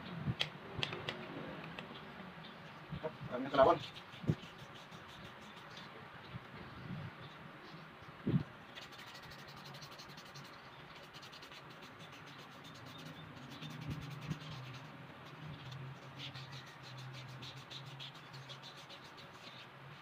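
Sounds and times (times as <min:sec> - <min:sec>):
sandpaper scraping steel shaft: 0:08.8 - 0:19.7.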